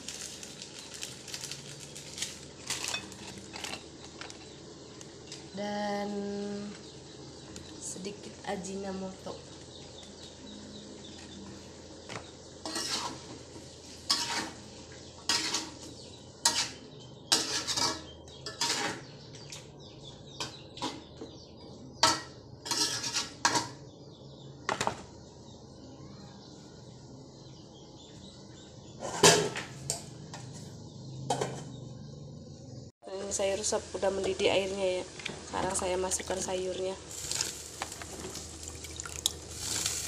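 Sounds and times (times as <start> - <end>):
metal spatula scraping wok: 12.6 - 19.1, 22.0 - 23.8.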